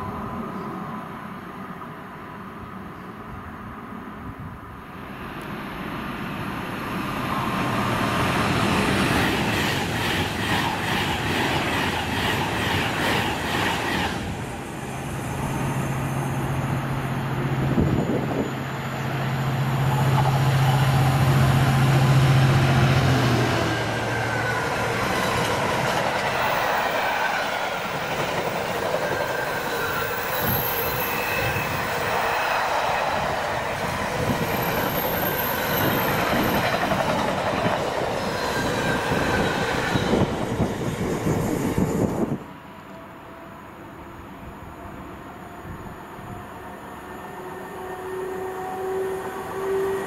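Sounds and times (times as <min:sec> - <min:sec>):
low train drone: 0:00.0 - 0:50.0
high wheel squeals: 0:29.2 - 0:32.4.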